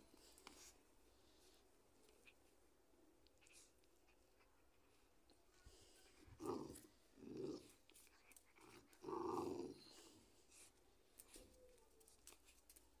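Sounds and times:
puppy growling: 6.1 - 10.2.

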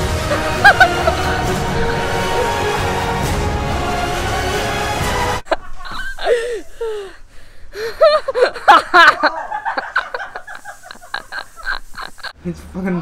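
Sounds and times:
boy laughing: 0.3 - 1.6, 5.4 - 7.2, 7.8 - 12.4.

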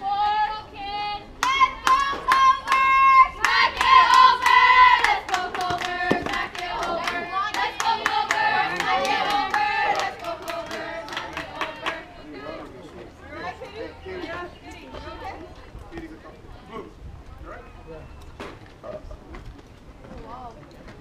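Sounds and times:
young voices chanting a cheer: 0.0 - 15.4
rhythmic hand clapping: 1.4 - 12.1.

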